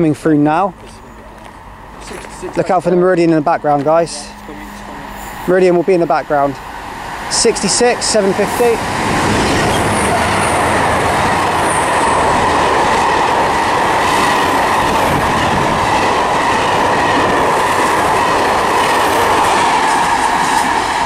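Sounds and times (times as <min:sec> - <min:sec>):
freight train rumbling past: 0:00.0 - 0:21.0
high ringing whine: 0:00.5 - 0:07.9.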